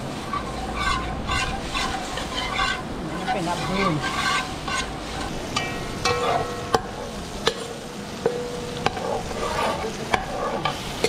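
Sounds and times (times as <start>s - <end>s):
low sizzle of frying: 0.0s - 11.0s
metal spoon knocking pot: 5.5s - 7.6s.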